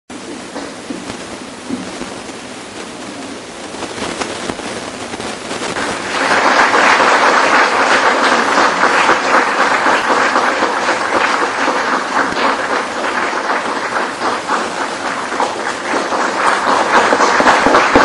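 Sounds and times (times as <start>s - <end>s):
audience applauding: 5.3s - 18.0s.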